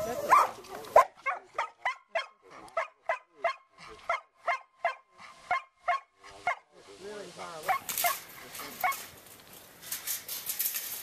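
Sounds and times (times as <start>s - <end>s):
dog barking: 0.2s - 6.7s.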